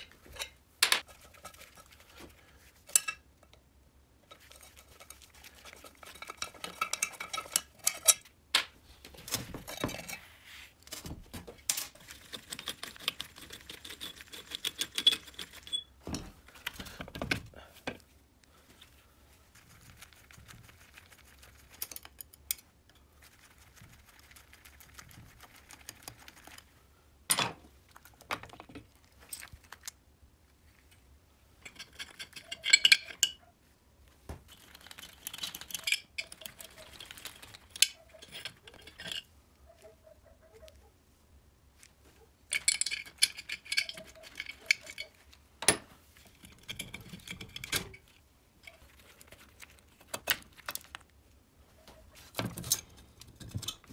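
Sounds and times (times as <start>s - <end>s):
metal engine parts clinking: 31.6s - 33.4s, 37.7s - 39.3s, 42.5s - 48.1s.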